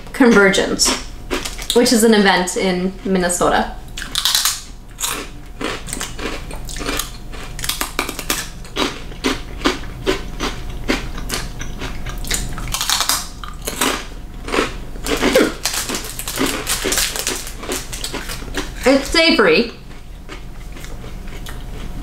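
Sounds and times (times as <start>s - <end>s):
rice crackers crunching: 1.3s - 1.8s, 4.0s - 19.2s, 19.8s - 22.0s.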